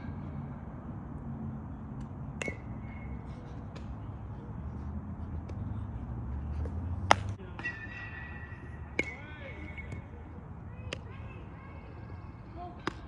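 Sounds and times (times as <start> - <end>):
baseball being hit or caught: 1.9 - 4.2, 5.4 - 10.2, 10.8 - 11.2, 12.7 - 13.0.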